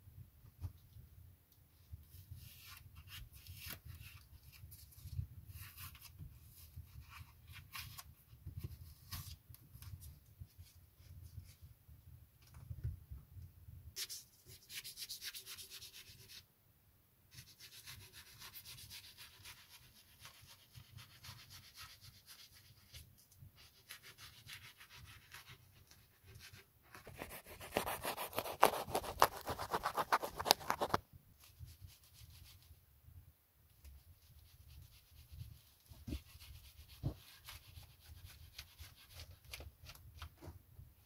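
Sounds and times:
knife scraping wood: 26.5s - 31.0s.

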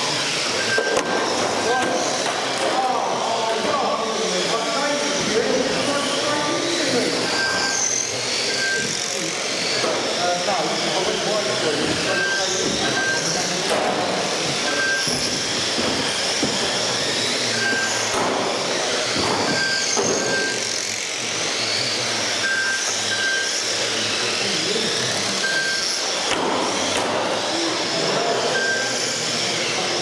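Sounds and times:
electric motors whining: 0.0s - 30.0s
short electronic beeps: 7.3s - 7.9s, 8.5s - 9.0s, 12.0s - 13.4s, 14.7s - 15.2s, 17.5s - 18.1s, 19.4s - 20.7s, 22.4s - 23.6s, 25.4s - 26.0s, 28.5s - 29.0s.

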